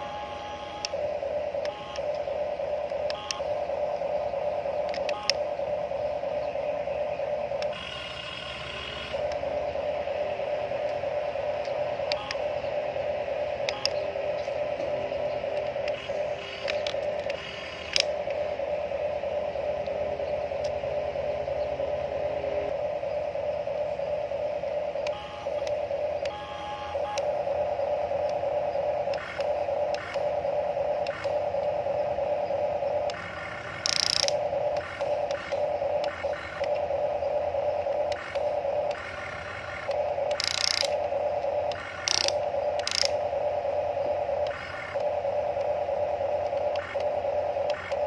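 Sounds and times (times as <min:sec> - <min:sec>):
small electric motors whining: 0:06.6 - 0:09.5, 0:13.6 - 0:18.6, 0:23.4 - 0:48.0.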